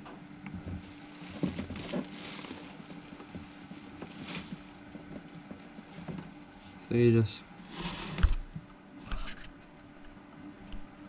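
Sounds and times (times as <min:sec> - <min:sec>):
faint steady hum: 0:00.0 - 0:11.0
cable handling rustles and clicks: 0:00.5 - 0:06.4.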